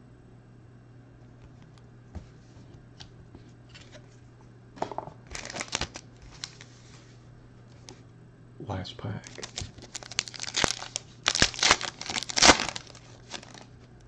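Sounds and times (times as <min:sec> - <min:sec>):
foil pack rustling and crinkling: 0:05.2 - 0:07.1, 0:09.2 - 0:13.9.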